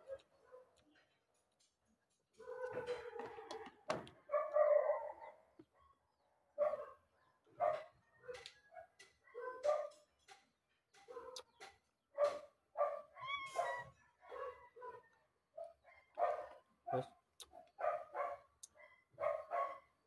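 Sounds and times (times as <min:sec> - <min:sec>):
dog barking: 0:00.0 - 0:00.8, 0:02.4 - 0:03.2, 0:04.2 - 0:06.0, 0:06.6 - 0:10.1, 0:11.0 - 0:11.6, 0:12.2 - 0:20.0
dog whining yelp: 0:13.1 - 0:14.0.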